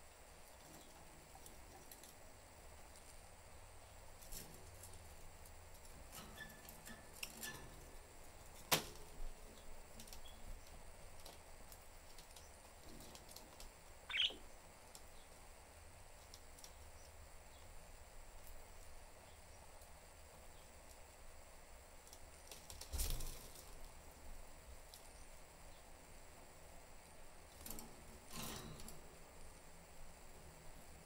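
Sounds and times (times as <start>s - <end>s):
faint ticks and clicks: 4.1s - 15.4s, 16.1s - 17.7s, 18.3s - 21.1s
budgerigar chirp: 14.1s - 14.4s.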